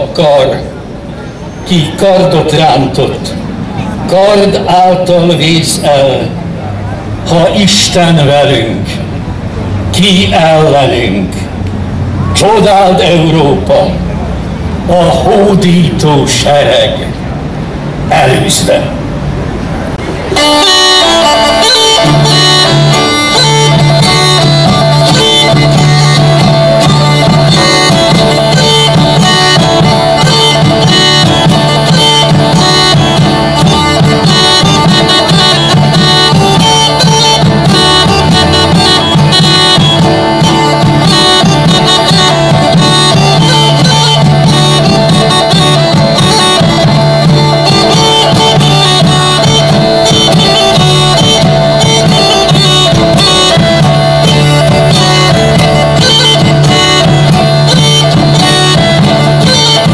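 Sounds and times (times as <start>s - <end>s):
bagpipe melody and drone: 0.0s - 6.4s, 7.0s - 17.0s, 20.0s - 59.9s
plucked lute: 19.9s - 59.9s
frame drum strokes: 20.0s - 59.9s.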